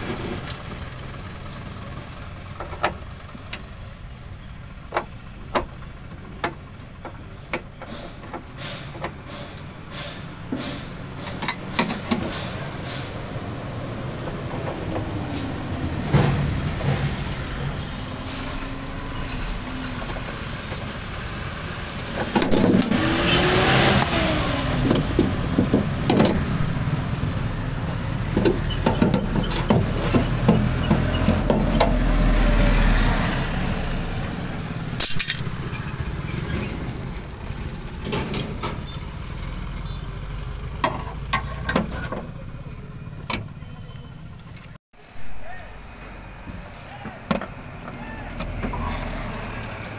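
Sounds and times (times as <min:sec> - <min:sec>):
low engine rumble: 0:00.0 - 0:49.9
car engine revving: 0:13.4 - 0:34.4.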